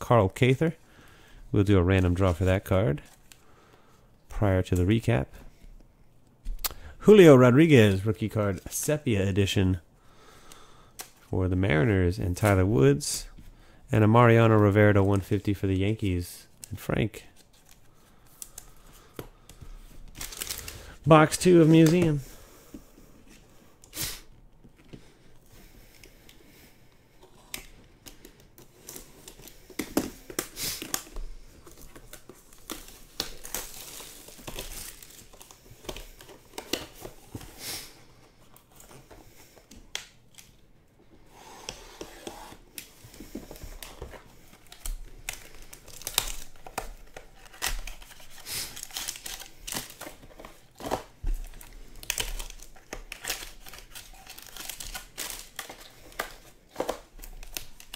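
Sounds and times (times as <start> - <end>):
card packs rustling and crinkling: 10.8 - 57.9
wrapper tearing open: 44.6 - 57.9.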